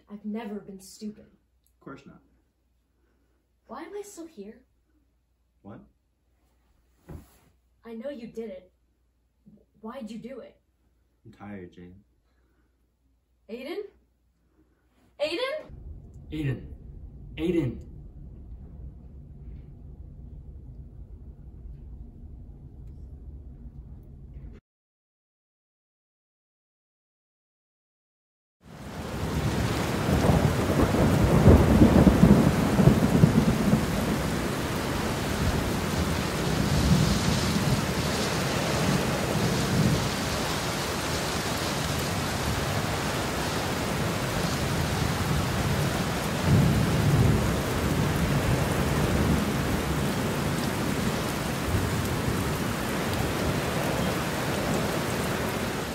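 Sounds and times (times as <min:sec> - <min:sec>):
low rumble of thunder: 0:15.7 - 0:24.6, 0:28.8 - 0:55.9
steady rain: 0:28.6 - 0:55.9.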